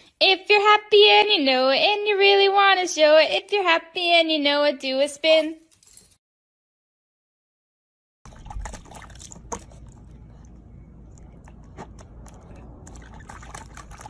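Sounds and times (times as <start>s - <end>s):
dog lapping water: 8.3s - 14.0s.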